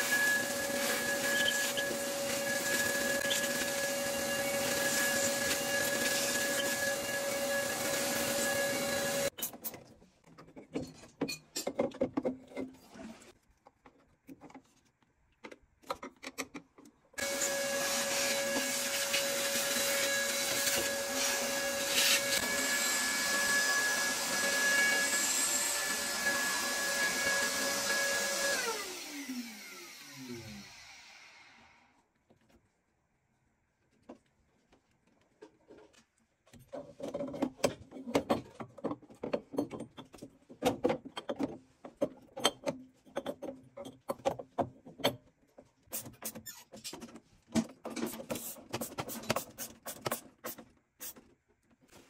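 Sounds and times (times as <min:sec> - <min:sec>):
vacuum cleaner running: 0:00.0 - 0:09.3, 0:17.2 - 0:31.9.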